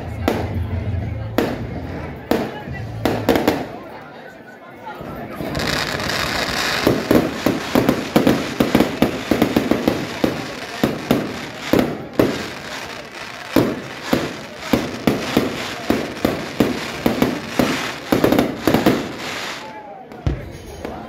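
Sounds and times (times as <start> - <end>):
firework bangs: 5.3 - 20.6.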